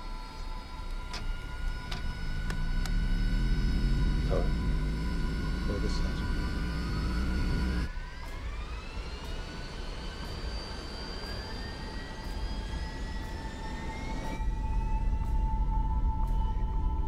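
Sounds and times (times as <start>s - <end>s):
jet engines spooling up: 0.0s - 17.0s
low rumble: 0.9s - 17.0s.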